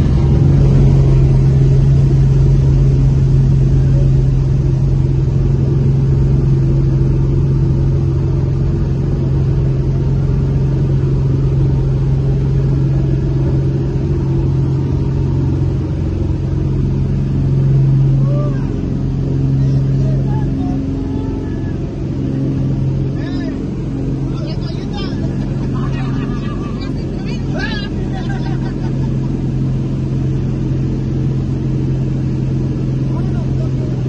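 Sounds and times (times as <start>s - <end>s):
light aircraft engine droning: 0.0s - 34.0s.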